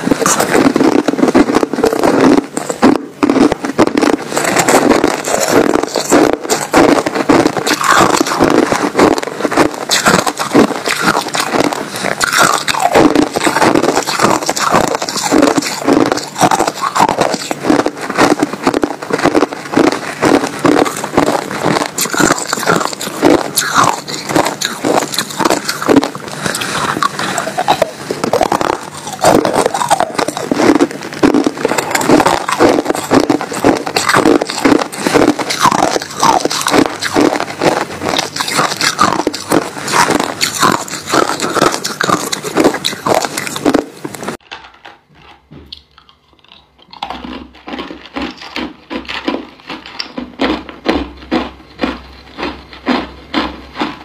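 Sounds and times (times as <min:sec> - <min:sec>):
ice being chewed: 0:00.0 - 0:54.0.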